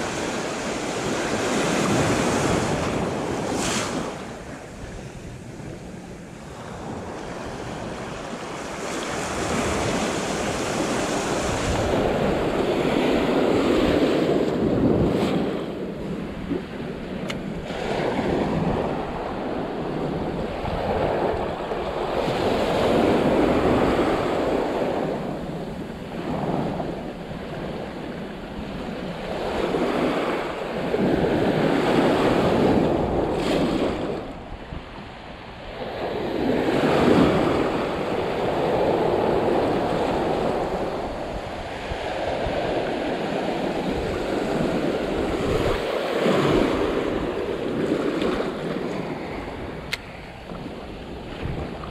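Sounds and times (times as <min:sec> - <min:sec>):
wind buffeting microphone: 0:00.0 - 0:51.9
surf breaking on beach: 0:35.8 - 0:51.9.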